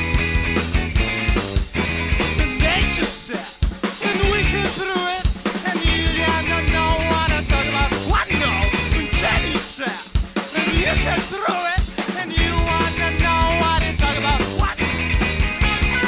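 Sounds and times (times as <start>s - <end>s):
drum-kit beat: 0.0s - 16.0s.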